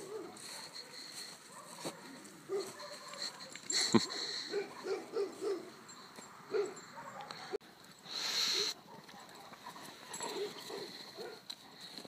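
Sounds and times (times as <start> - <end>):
dog barking: 0.0 - 5.8, 6.5 - 7.6, 8.5 - 9.6, 10.2 - 11.8.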